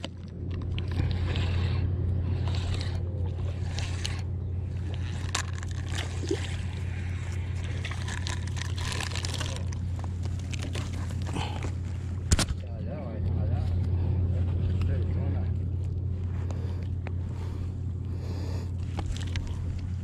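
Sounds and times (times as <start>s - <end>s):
water sloshing and trickling: 0.0s - 12.3s, 18.8s - 20.0s
low hum: 0.0s - 20.0s.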